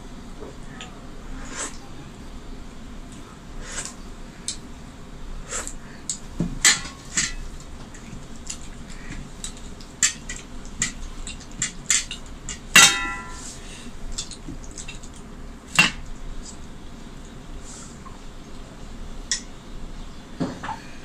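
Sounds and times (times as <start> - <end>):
metal plate clanking and ringing: 12.8 - 13.5.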